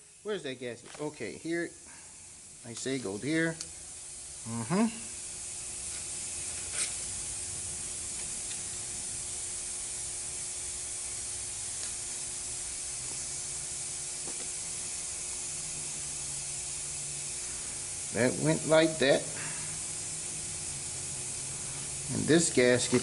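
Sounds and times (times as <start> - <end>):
steady hiss: 0.0 - 23.0.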